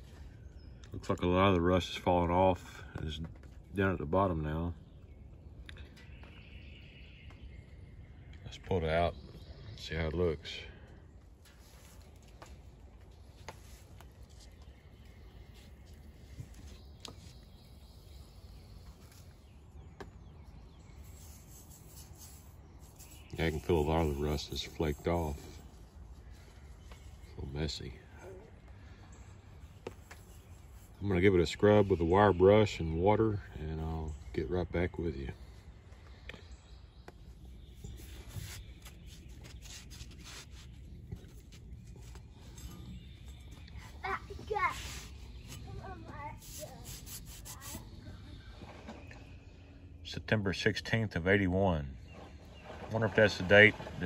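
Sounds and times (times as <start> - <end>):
low outdoor background: 0.0 - 54.0
cloth rubbing on steel handle: 21.0 - 25.7, 37.8 - 42.8, 44.5 - 47.8.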